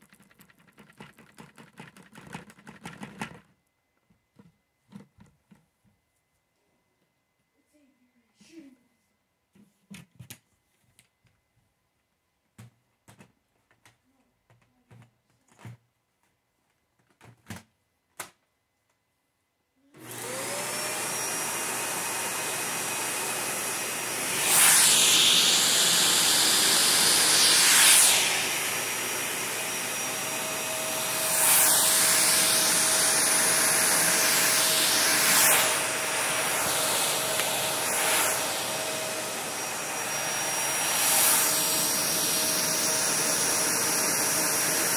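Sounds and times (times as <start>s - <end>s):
vacuum cleaner running: 20.0s - 44.9s.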